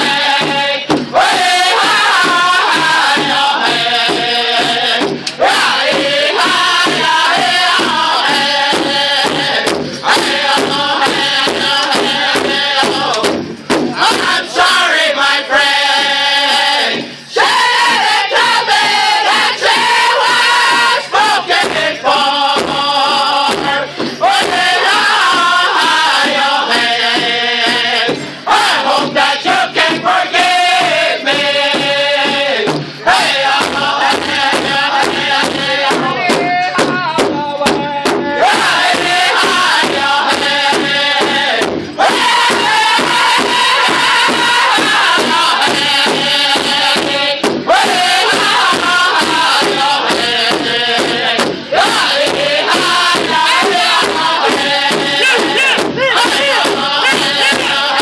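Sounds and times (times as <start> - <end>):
big drum beating: 0.0 - 58.0
men singing a high chant: 0.0 - 58.0.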